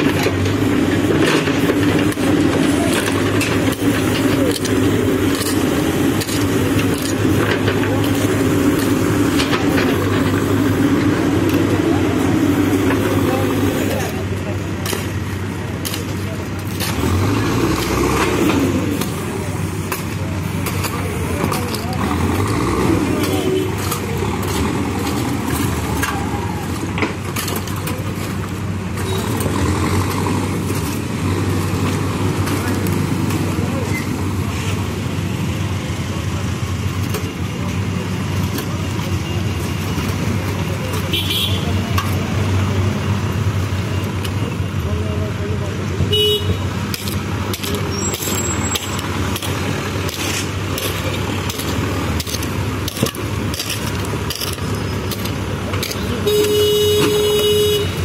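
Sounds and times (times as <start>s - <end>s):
hoe scraping gravel and stones: 0.0s - 35.3s, 46.6s - 58.0s
diesel engine running: 0.0s - 58.0s.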